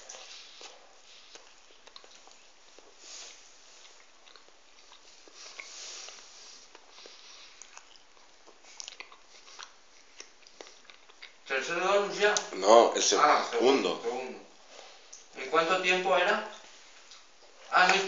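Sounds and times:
chewing doughnut: 0.0 - 11.5
wet mouth clicks: 6.8 - 11.4.

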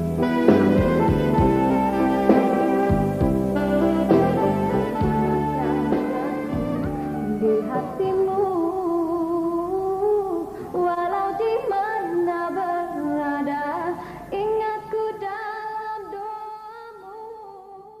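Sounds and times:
music: 0.0 - 18.0
woman singing long notes: 3.8 - 18.0.

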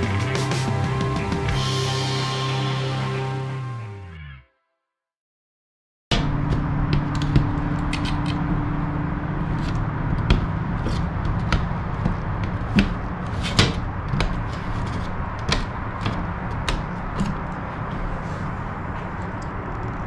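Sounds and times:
steady background hum: 6.2 - 20.0.

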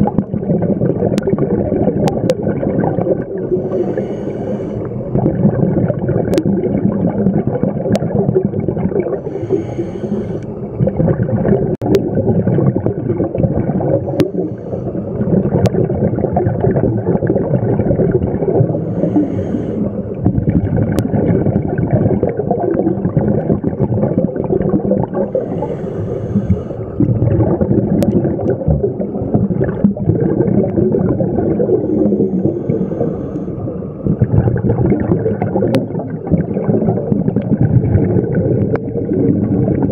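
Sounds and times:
exhaled bubbles rumbling underwater: 0.0 - 39.9
regulator inhalation hiss: 3.6 - 5.0, 9.2 - 10.6, 18.8 - 20.0, 25.3 - 27.0, 31.8 - 33.6.

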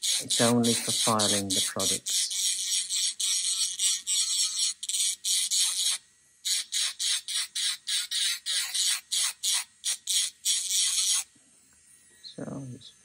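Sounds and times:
electric nail file grinding: 0.0 - 12.3.

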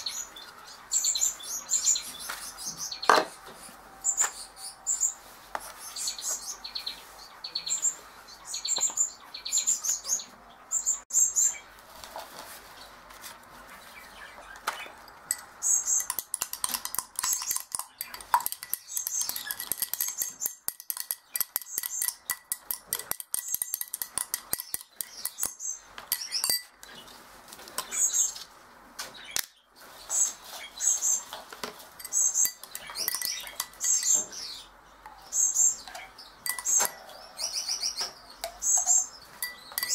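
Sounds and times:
cage birds chirping: 0.0 - 39.9
spoon clinking against glass: 15.1 - 26.8, 32.0 - 34.4, 36.4 - 37.1, 38.4 - 39.9.

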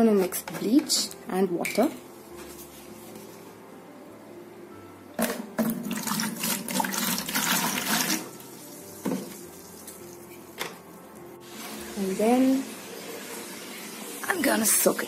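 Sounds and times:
liquid pouring into plastic bucket: 5.6 - 8.4.

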